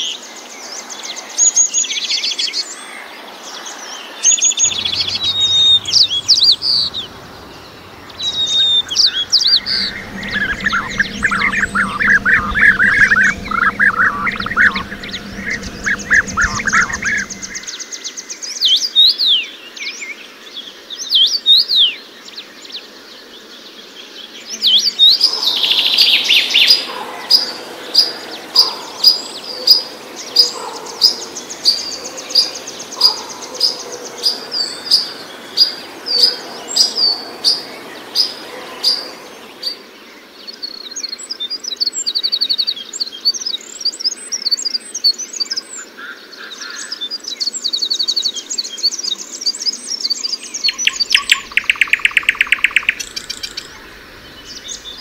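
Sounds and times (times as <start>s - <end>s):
whistled birdsong phrases: 0.0s - 17.8s, 30.2s - 55.0s
fast high bird twittering: 4.3s - 17.7s, 50.6s - 55.0s.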